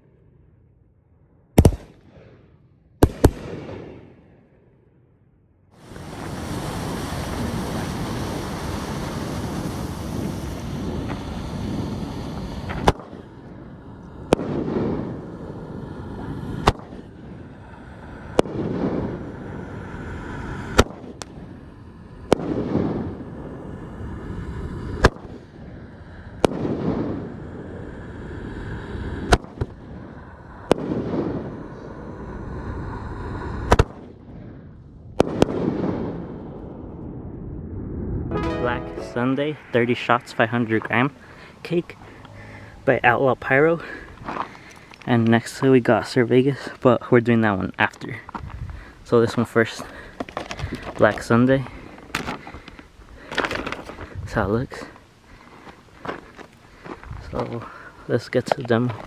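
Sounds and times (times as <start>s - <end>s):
fireworks bangs: 3.0s - 4.0s, 5.8s - 13.3s, 38.3s - 40.1s
fireworks rushing noise: 5.8s - 23.7s, 38.3s - 41.1s.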